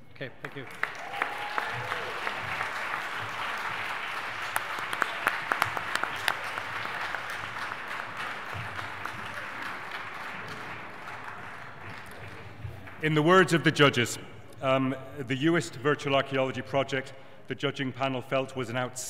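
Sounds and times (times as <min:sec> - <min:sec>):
audience applauding: 0:00.4 - 0:13.8.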